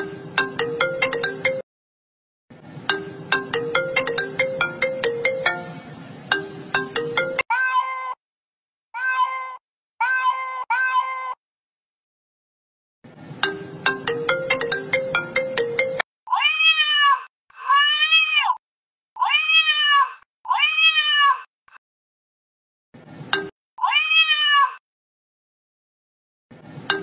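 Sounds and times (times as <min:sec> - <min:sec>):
recorded cat meows: 0:07.5 - 0:08.2, 0:08.9 - 0:11.4, 0:16.3 - 0:18.6, 0:19.2 - 0:21.5, 0:23.8 - 0:24.8.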